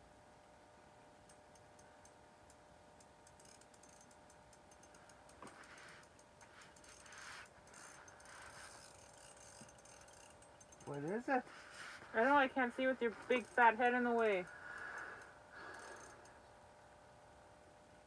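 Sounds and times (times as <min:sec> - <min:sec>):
faint steady hum: 0:00.0 - 0:18.0
fishing reel ticking: 0:01.3 - 0:16.4
soft rustling: 0:05.4 - 0:14.5.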